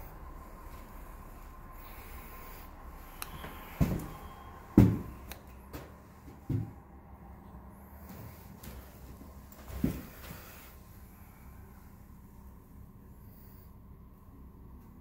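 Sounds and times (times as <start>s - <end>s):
dull thumps: 3.4s - 6.8s.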